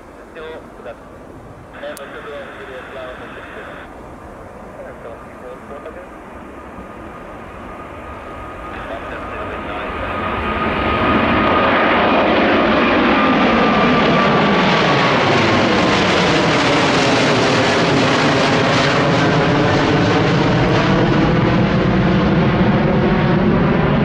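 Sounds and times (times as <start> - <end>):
jet roar passing overhead: 0.0 - 24.0.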